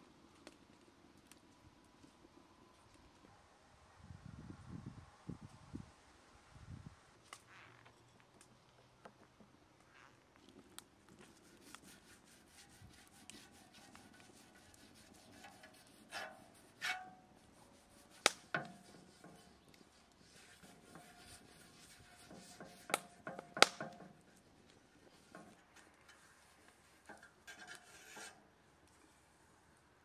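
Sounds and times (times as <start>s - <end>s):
wood fire crackling: 0.0s - 3.2s, 10.4s - 29.0s
fork scraping on iron griddle: 11.4s - 24.3s, 25.0s - 28.4s.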